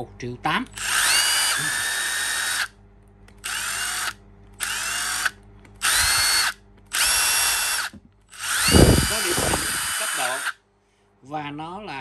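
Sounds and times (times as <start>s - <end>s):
impact driver motor whine: 0.8s - 2.7s, 3.4s - 10.6s.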